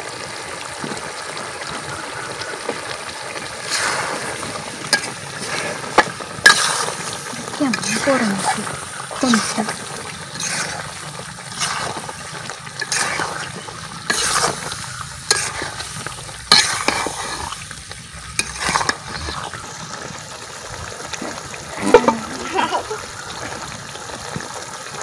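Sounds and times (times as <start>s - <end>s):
sauce sizzling: 0.0s - 25.0s
spatula scraping metal pan: 3.7s - 19.6s, 21.8s - 22.5s.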